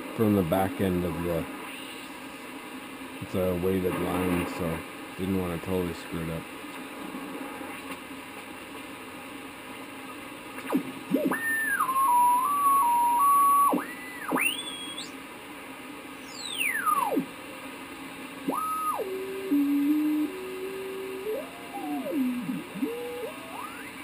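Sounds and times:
radio band noise hiss: 0.0 - 24.0
swooping radio whistles: 10.6 - 15.2, 16.2 - 17.3, 18.4 - 24.0.

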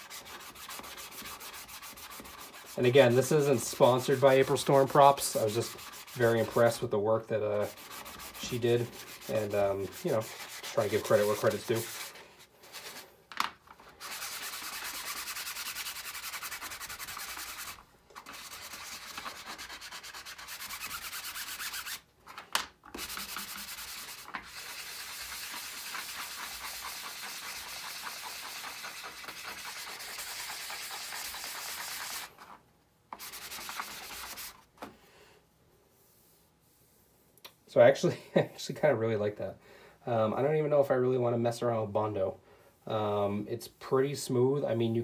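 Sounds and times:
sanding sponge rasping on plastic: 0.0 - 6.9, 7.6 - 13.0, 14.0 - 22.0, 23.0 - 32.4, 33.2 - 34.6.

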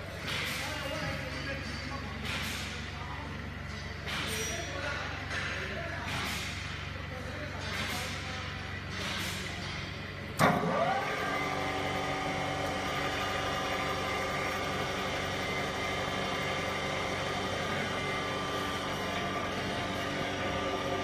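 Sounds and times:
vacuum pump whine: 10.3 - 21.0
pump switching on clunk: 10.4 - 11.4.

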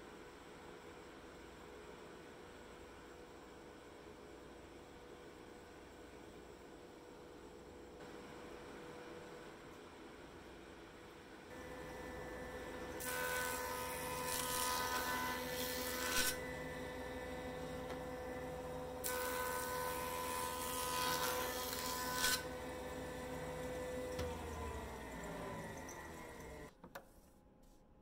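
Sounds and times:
board cutting noise: 11.5 - 26.7
jointer motor humming: 11.5 - 26.7.

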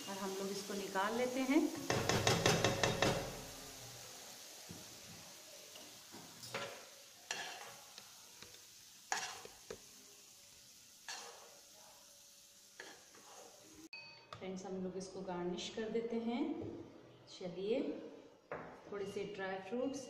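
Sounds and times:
faint steady hiss: 0.0 - 13.9
spoon scraping a frying pan: 5.8 - 9.9, 11.0 - 11.7, 12.8 - 13.8.

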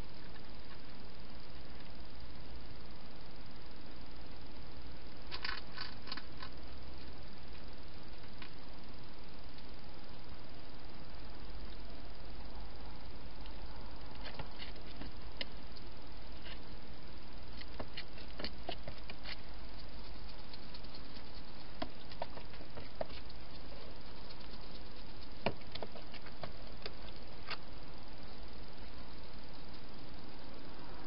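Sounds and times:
steady hiss: 0.0 - 31.0
hedgehog crunching food: 5.3 - 6.6, 17.5 - 27.7.

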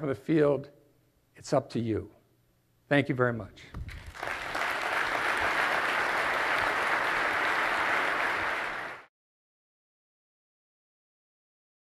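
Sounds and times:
audience applauding: 3.9 - 9.1.

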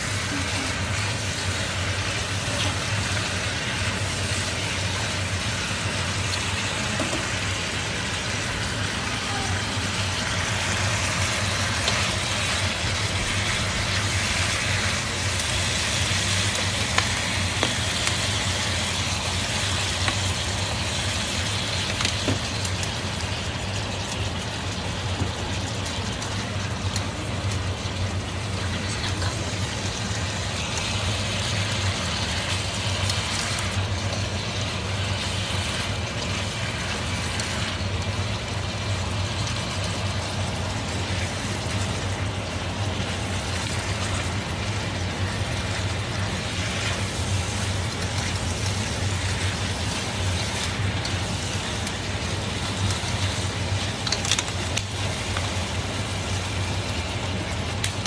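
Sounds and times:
food sizzling in a wok: 0.0 - 58.0
chopsticks ticking against pan: 52.8 - 55.7.

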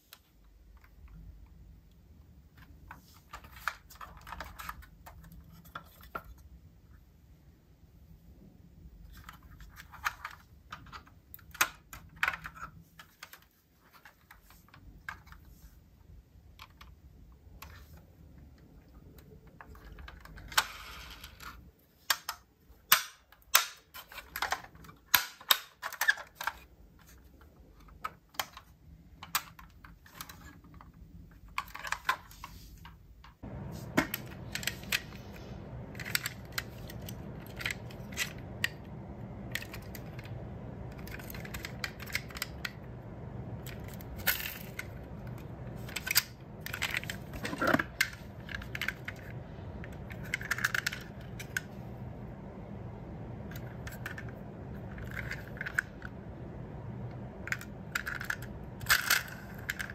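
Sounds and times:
low hum: 33.4 - 59.9
metal model cars clicking: 34.1 - 43.0, 43.6 - 51.7, 53.5 - 56.1, 57.4 - 59.9.

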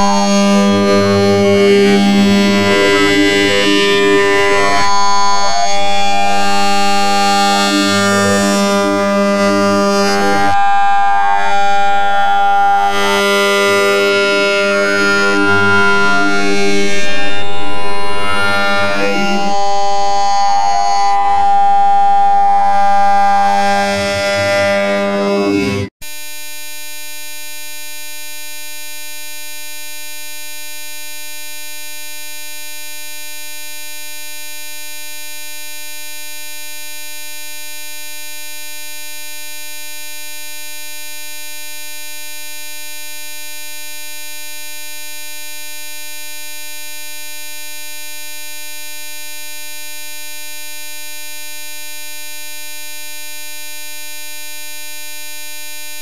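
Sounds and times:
music with held reedy note: 0.0 - 25.9
steady electronic buzz tone: 0.0 - 28.3.

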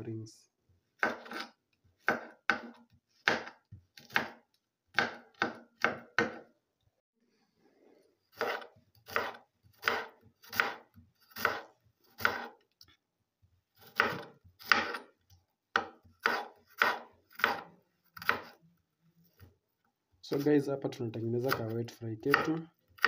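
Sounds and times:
knife slicing onion on board: 1.0 - 6.5, 8.3 - 12.6, 13.8 - 18.6, 21.4 - 23.0.

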